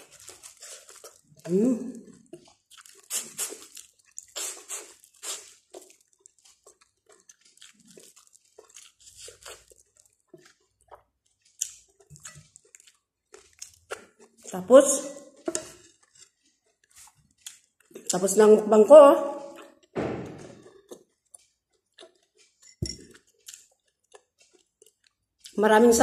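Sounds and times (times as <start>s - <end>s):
chewing corn on the cob: 0.0s - 18.4s, 20.6s - 25.7s.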